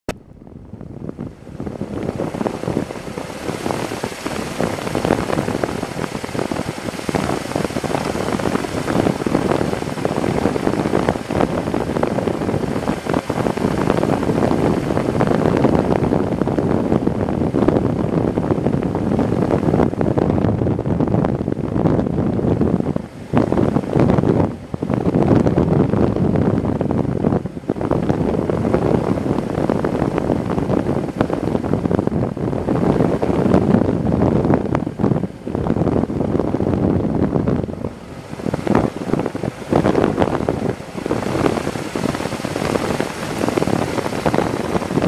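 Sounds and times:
wind buffeting microphone: 0.1s - 45.0s.

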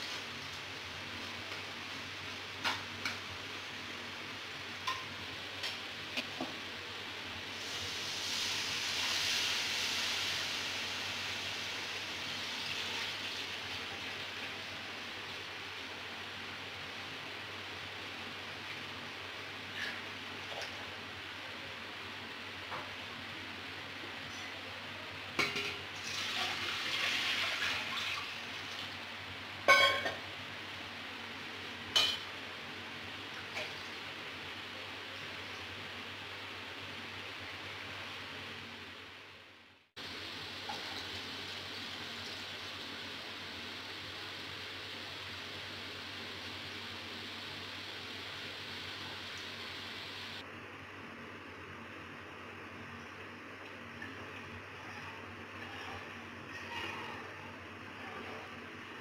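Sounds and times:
batter sizzling in hot oil: 7.4s - 21.0s, 39.9s - 50.4s
metal ladle clanking on pot: 29.7s - 30.2s.

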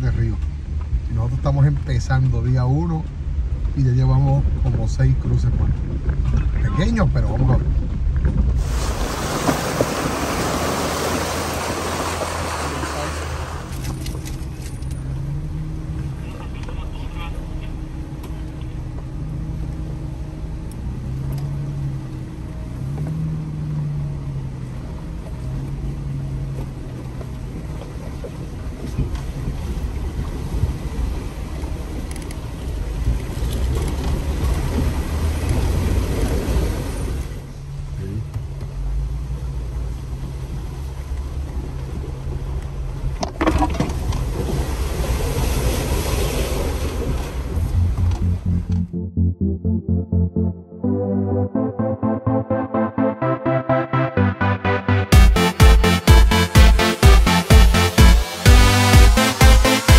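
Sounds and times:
off-road vehicle engine: 0.0s - 49.0s
sharp splash or knock: 8.6s - 13.9s
water splashing around tyres: 8.6s - 15.0s.

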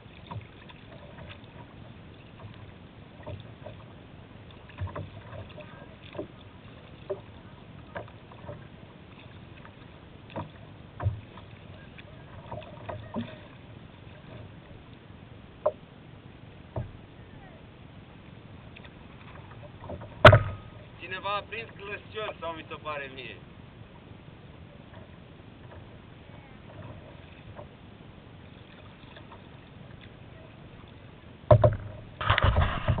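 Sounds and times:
water wash: 0.0s - 15.0s
paddle splashes and knocks: 0.0s - 15.9s, 16.5s - 17.2s, 18.1s - 33.0s
water washing against kayak hull: 0.0s - 33.0s
wind: 0.0s - 33.0s.

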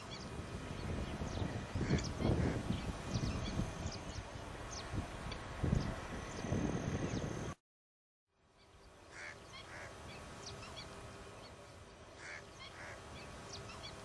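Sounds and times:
distant waterbirds honking: 0.0s - 4.1s, 9.0s - 14.0s.

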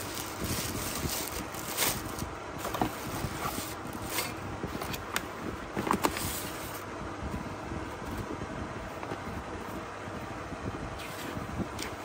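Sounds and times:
plastic wrapping crinkling: 0.0s - 4.3s
cardboard box being handled: 0.0s - 5.1s.

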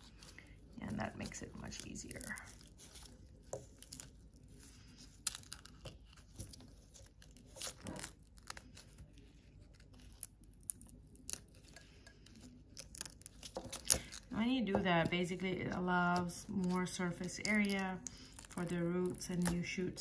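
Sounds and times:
dry stalk sheath tearing: 0.0s - 11.6s.

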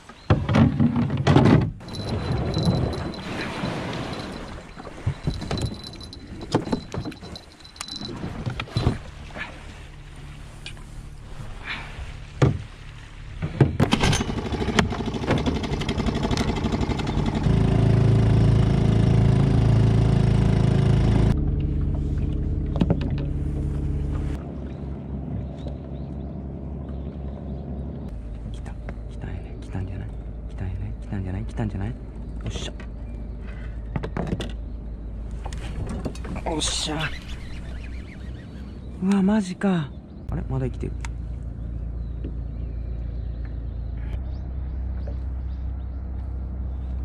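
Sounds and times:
outboard motor running: 1.8s - 39.1s.

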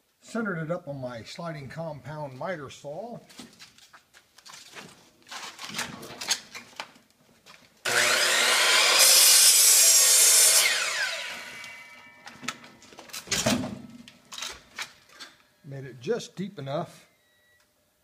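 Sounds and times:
miter saw cutting wood: 7.8s - 12.3s
saw blade spinning down: 7.8s - 12.3s.

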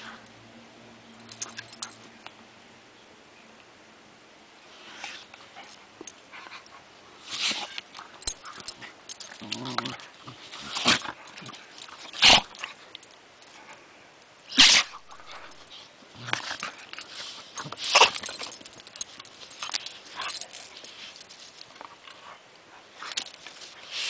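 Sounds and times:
dogs huffing while play-fighting: 14.7s - 24.0s.

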